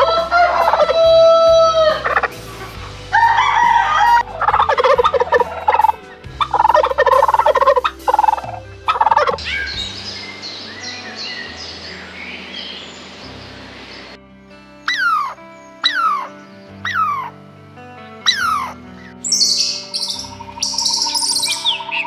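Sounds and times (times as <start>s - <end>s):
turkeys gobbling: 0.0s - 9.5s
high bird chirps: 4.0s - 13.5s, 14.8s - 17.3s, 18.3s - 22.0s.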